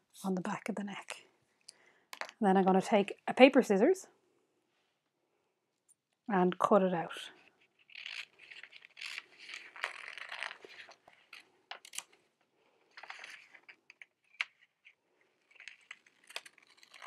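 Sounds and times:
scissors snipping paper: 15.5 - 17.0.

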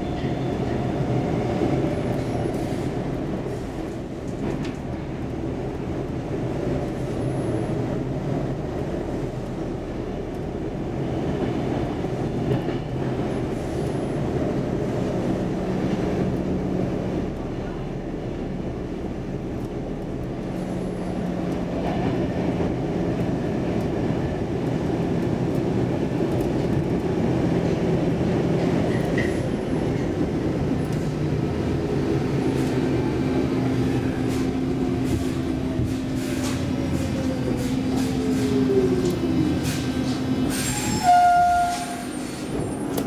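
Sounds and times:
subway train rumble: 0.0 - 43.0
falling whine of train: 6.8 - 43.0.

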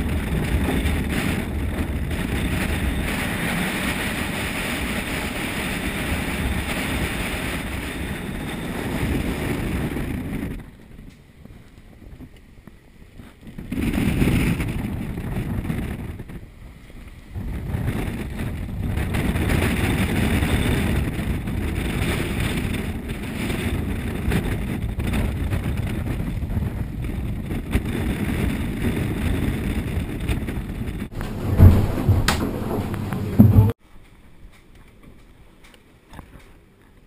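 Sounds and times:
wind rushing over microphone: 0.0 - 33.8
loud thump: 31.1 - 33.8
water rushing along hull: 31.1 - 33.8.

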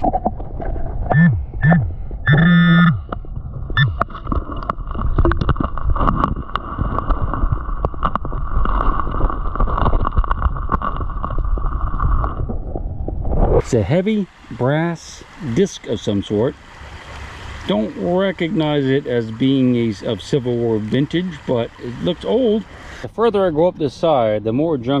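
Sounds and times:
stones clicking underwater: 3.0 - 13.5.

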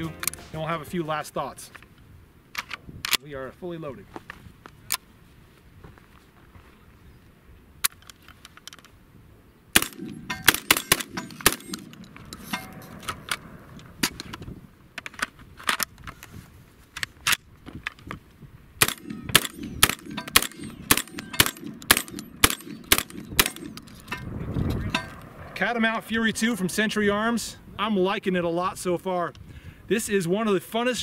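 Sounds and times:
shotgun firing: 9.8 - 12.1, 18.8 - 23.9.

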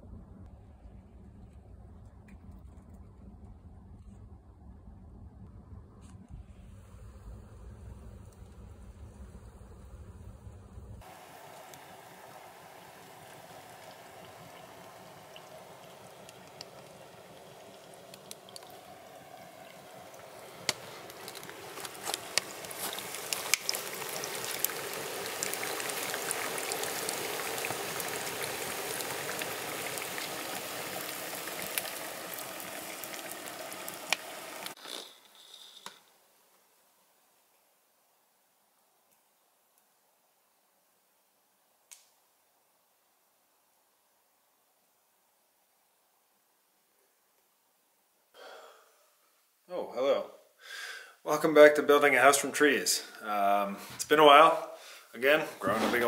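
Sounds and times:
burning wood crackling: 0.4 - 36.1
liquid boiling hard: 6.4 - 35.1.

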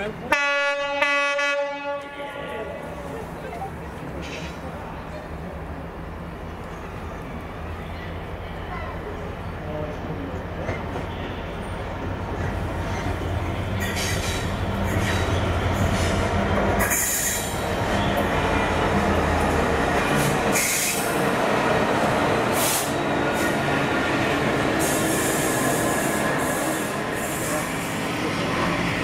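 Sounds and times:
train wheels rushing on rails: 8.7 - 29.0.

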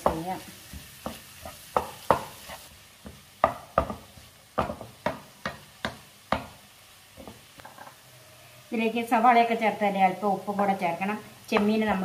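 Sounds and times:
wooden spatula tapping frying pan: 0.0 - 6.6, 11.5 - 12.0.

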